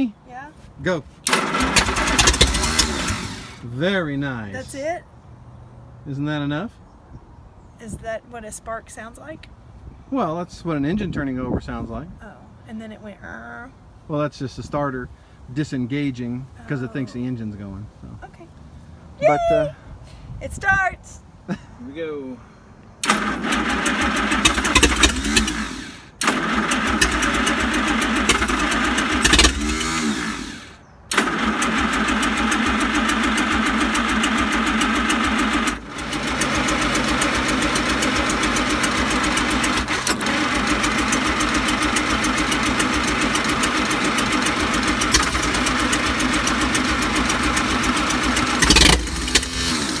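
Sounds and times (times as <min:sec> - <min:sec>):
engine cranking and starting: 0:01.2 - 0:03.7, 0:23.0 - 0:50.0.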